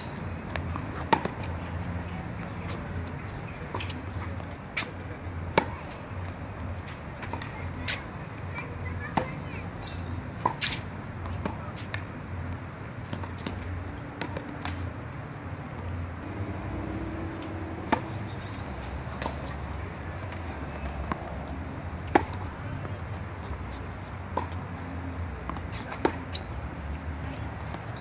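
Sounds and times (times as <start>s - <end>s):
tennis ball bouncing on hard court: 0.1s - 4.9s, 5.5s - 8.0s, 8.8s - 12.0s, 13.0s - 14.9s, 16.2s - 24.6s, 25.4s - 26.5s
tennis ball hitting racket strings: 0.5s - 1.9s, 5.5s - 5.9s, 13.0s - 14.9s, 16.2s - 21.2s, 22.0s - 22.5s, 25.4s - 26.5s
steady low hum: 10.1s - 26.8s.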